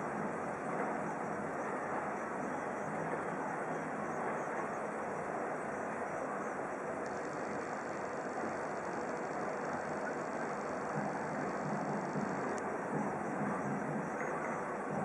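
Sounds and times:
distant traffic hum: 0:00.0 - 0:15.0
street din: 0:06.8 - 0:15.0.

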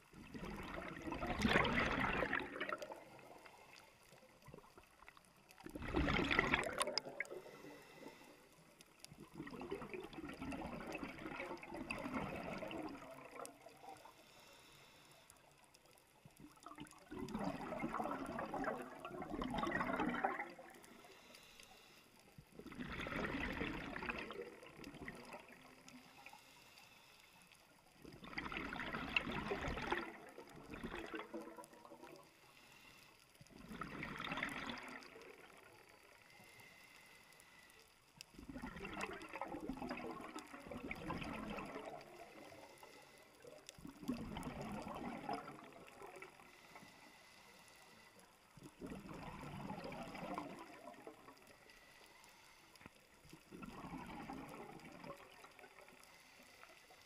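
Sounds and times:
gurgling exhaust bubbles: 0:00.0 - 0:03.4, 0:05.7 - 0:07.4, 0:09.2 - 0:13.6, 0:16.6 - 0:20.8, 0:22.6 - 0:25.7, 0:28.2 - 0:32.0, 0:33.6 - 0:35.6, 0:38.4 - 0:42.2, 0:43.8 - 0:46.3, 0:48.7 - 0:51.3
regulator breathing hiss: 0:21.0 - 0:22.2, 0:32.3 - 0:33.2, 0:46.5 - 0:48.4, 0:51.6 - 0:52.8.

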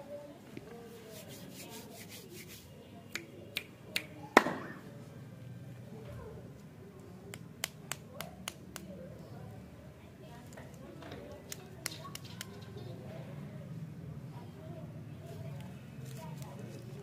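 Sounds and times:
wrapped lollipops tapping and clicking: 0:07.3 - 0:08.9, 0:11.3 - 0:12.7.

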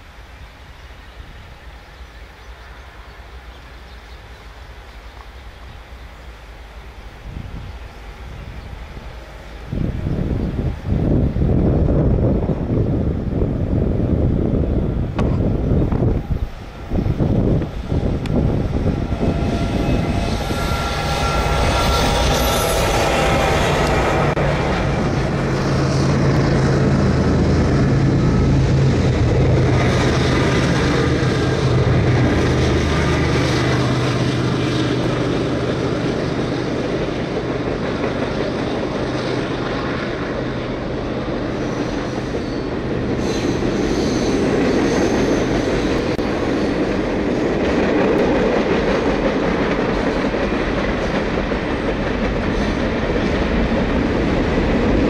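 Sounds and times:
diesel locomotive engine drone: 0:00.0 - 0:55.0
high wheel squeals: 0:18.8 - 0:23.9, 0:41.5 - 0:46.2.

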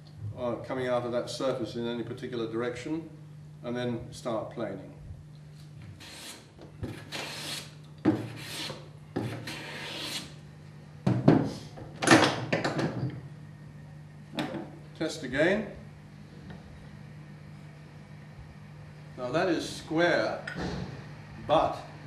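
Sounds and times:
hand plane cutting wood: 0:06.0 - 0:10.3.

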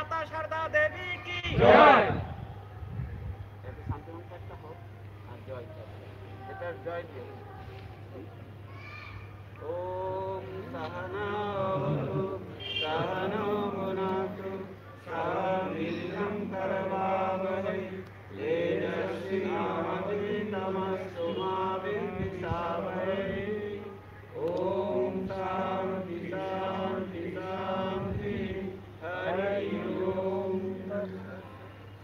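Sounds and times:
men chanting a prayer: 0:00.0 - 0:02.4, 0:09.6 - 0:31.8.

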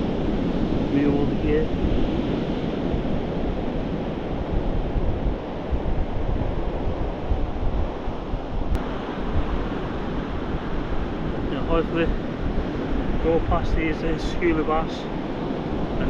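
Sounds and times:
surf breaking on shore: 0:00.0 - 0:16.0
wind buffeting microphone: 0:00.0 - 0:16.0.

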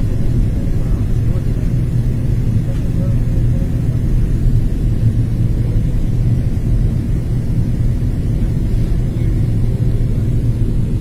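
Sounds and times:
airliner cabin engine rumble: 0:00.0 - 0:11.0.

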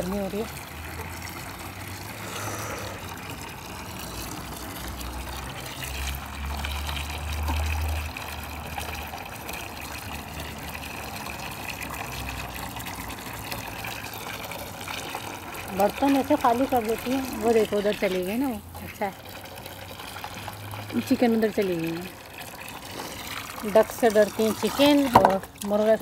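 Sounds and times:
water running from a tap: 0:00.0 - 0:26.0.

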